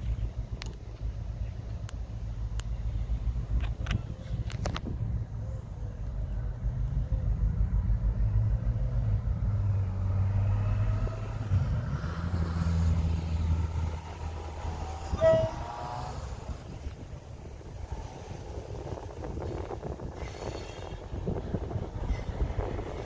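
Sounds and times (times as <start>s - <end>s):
diesel locomotive engine humming: 0.0s - 23.0s
locomotive horn toot: 14.6s - 16.6s.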